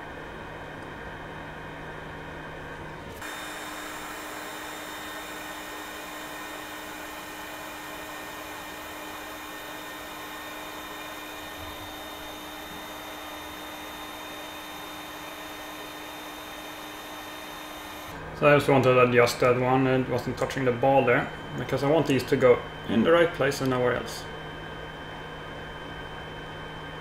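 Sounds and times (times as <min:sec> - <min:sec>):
hot air station blowing: 0:03.1 - 0:18.8.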